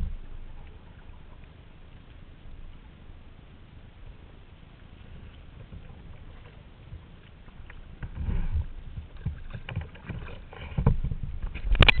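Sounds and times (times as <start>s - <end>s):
paddle splashing in water: 5.0s - 12.0s.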